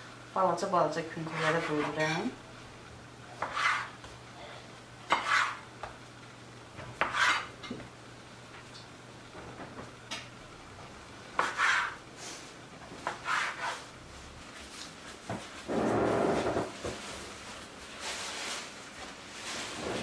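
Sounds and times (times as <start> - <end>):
dough knocking and scraping on wood: 3.4 - 4.0, 5.1 - 6.0, 6.8 - 7.5, 11.4 - 12.0, 12.9 - 13.8.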